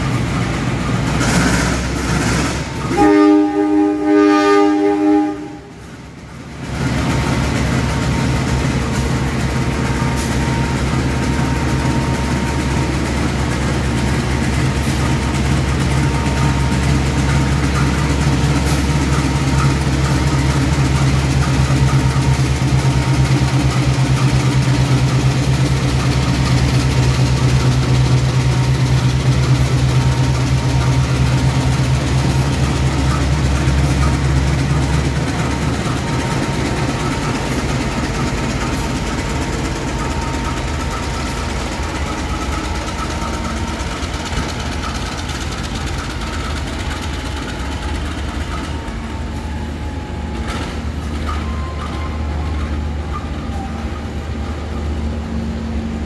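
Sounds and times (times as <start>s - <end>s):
locomotive engine drone: 0.0s - 56.0s
multi-tone train horn: 2.6s - 6.0s, 48.7s - 50.5s.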